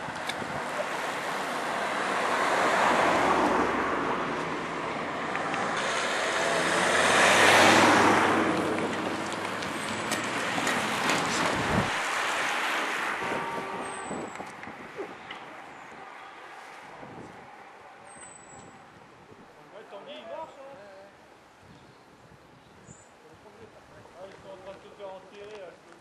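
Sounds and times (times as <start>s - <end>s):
car passing on tarmac road: 0.0s - 19.0s
louder vehicle passing: 0.4s - 18.1s.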